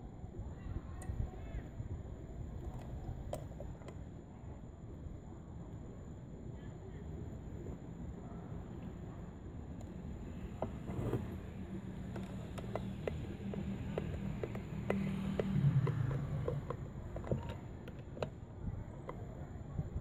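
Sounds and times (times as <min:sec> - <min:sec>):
low steady rumble: 0:00.0 - 0:20.0
nut driver clicking on screws: 0:12.0 - 0:18.3.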